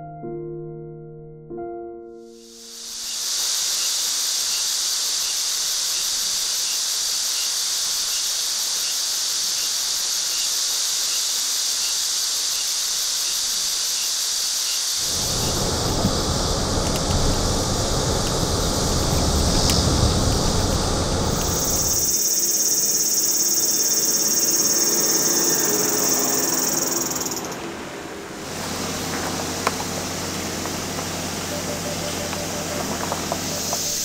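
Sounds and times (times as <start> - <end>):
high steady hiss: 2.3 - 34.0
low rumbling noise: 15.0 - 22.4, 23.9 - 34.0
steady hum with faint tones: 15.0 - 34.0.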